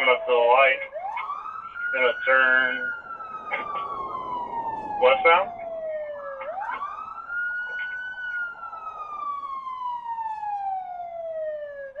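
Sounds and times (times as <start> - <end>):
police siren wailing: 0.0 - 12.0.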